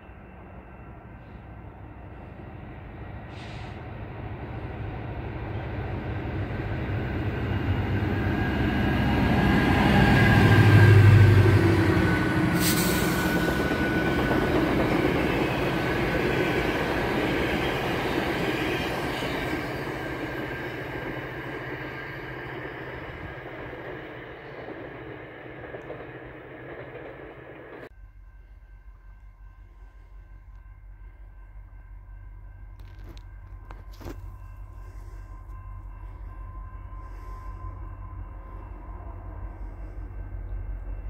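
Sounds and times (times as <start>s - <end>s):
locomotive engine drone: 0.0s - 41.0s
train wheels running: 2.8s - 28.0s.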